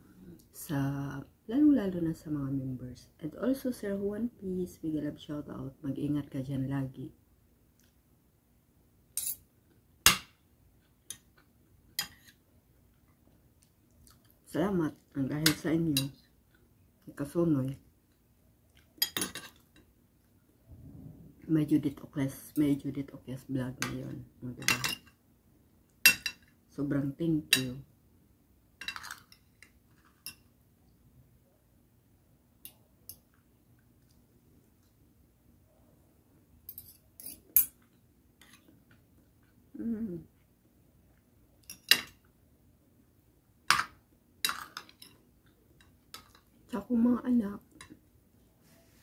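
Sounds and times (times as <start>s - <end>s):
cutlery clinking on a plate: 9.2s - 9.4s, 19.0s - 19.7s, 26.1s - 26.5s
metal spoon clinking on a plate: 9.2s - 9.4s.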